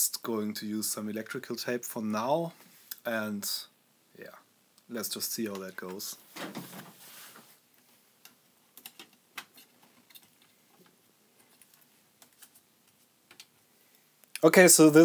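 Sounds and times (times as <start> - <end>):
short rustle: 5.8 - 7.6.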